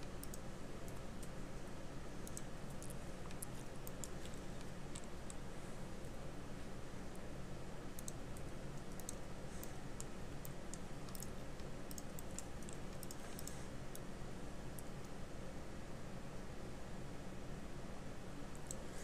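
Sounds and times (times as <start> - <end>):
steady low hum: 0.0 - 19.0
mouse and keyboard clicks: 2.2 - 5.4, 8.0 - 14.1.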